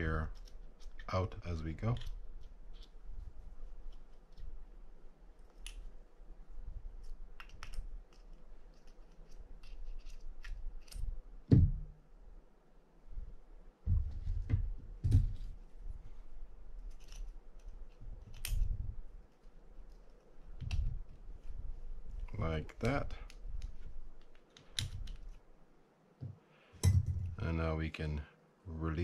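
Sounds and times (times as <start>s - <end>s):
small metal parts clicking and scraping: 7.0s - 11.1s, 16.8s - 18.7s
dull handling bumps: 11.5s - 12.0s.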